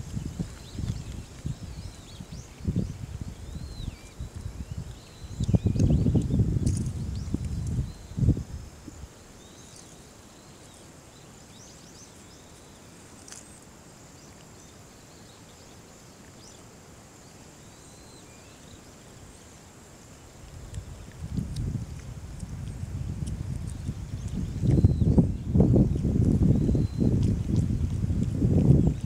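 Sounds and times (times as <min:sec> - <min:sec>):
bird chirps: 0:23.7 - 0:27.2.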